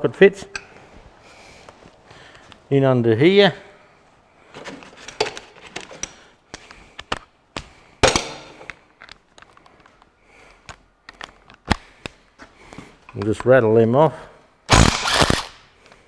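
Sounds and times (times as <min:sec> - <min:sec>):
hand tools clinking and clunking: 0:04.6 - 0:06.7, 0:08.0 - 0:09.7.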